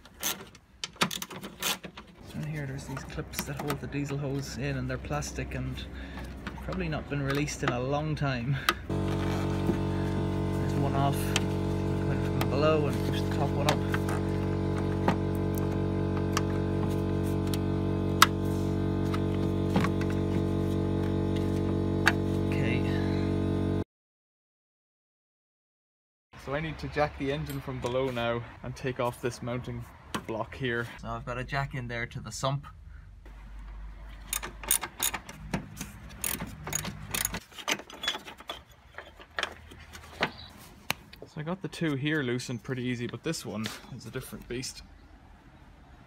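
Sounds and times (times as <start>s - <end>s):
steady hum: 8.9s - 23.8s
socket ratchet clicking: 34.2s - 35.5s, 36.1s - 37.4s.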